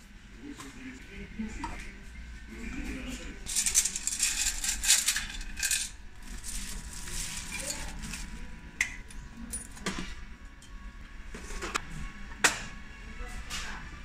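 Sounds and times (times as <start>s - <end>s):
coins clinking in metal tray: 3.5s - 6.0s.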